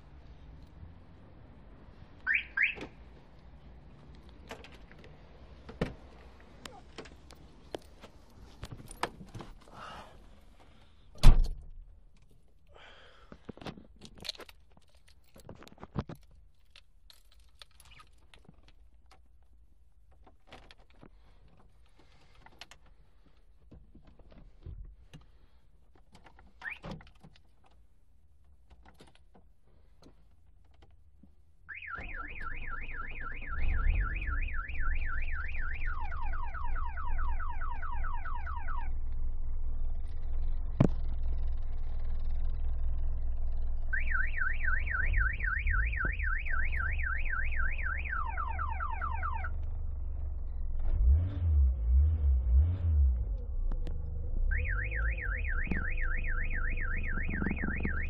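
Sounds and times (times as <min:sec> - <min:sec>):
car alarm siren: 0:02.2 - 0:03.0, 0:31.7 - 0:39.4, 0:43.8 - 0:49.8, 0:54.2 - 0:58.0
clicks and knocks in car cabin: 0:04.4 - 0:09.8.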